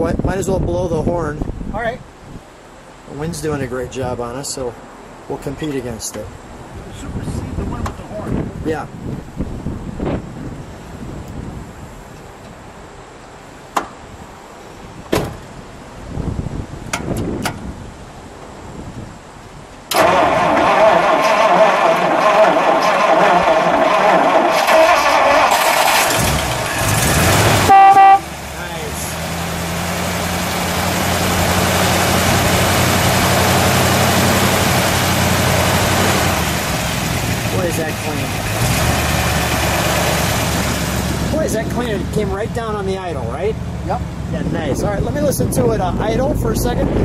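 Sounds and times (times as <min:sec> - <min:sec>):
wind buffeting microphone: 0:00.0 - 0:02.5, 0:06.5 - 0:12.8, 0:14.1 - 0:19.7, 0:40.4 - 0:47.0
sharp clicks and knocks: 0:16.9 - 0:17.6
car engine idling: 0:19.9 - 0:47.0.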